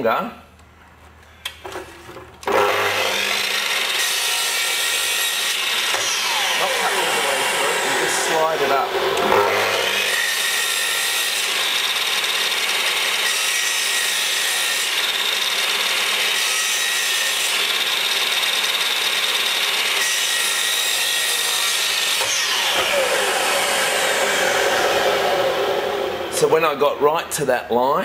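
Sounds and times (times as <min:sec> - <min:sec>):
mitre saw cutting timber: 0:02.4 - 0:27.4.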